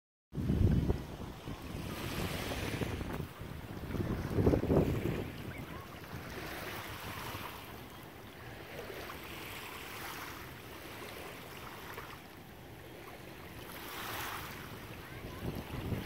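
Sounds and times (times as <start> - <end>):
wind on microphone: 0.4 - 7.7, 13.9 - 16.0
small waves lapping on sand: 0.4 - 16.0.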